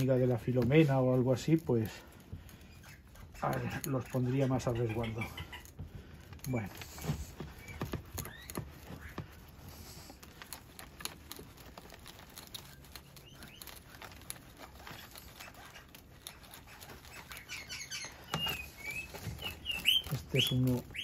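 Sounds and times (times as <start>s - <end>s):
root hook scratching soil: 0.0s - 21.0s.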